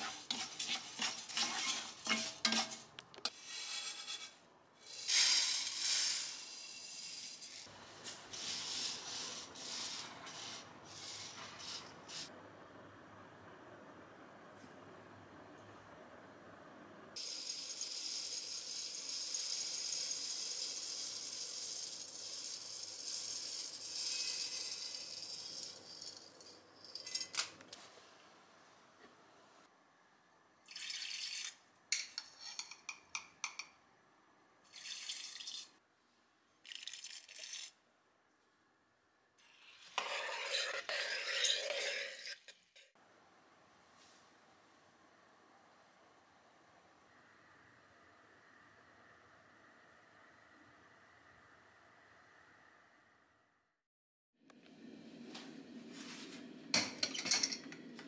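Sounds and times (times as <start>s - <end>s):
rice rattling in glass jar: 17.2s - 27.0s.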